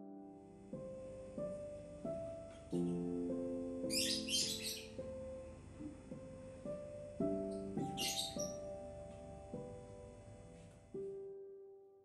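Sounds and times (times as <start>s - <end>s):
soft piano music: 0.0s - 12.0s
small bird chirping: 3.8s - 5.2s, 7.2s - 8.9s.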